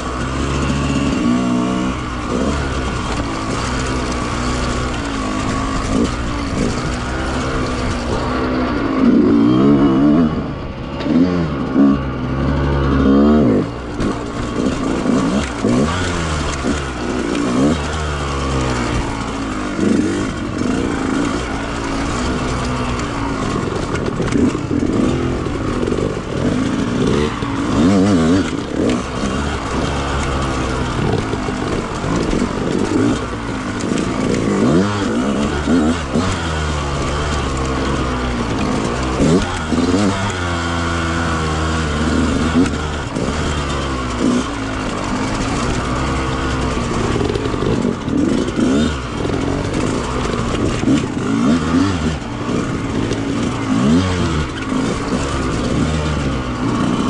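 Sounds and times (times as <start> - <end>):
two-stroke dirt bike revving: 0.0 - 57.0.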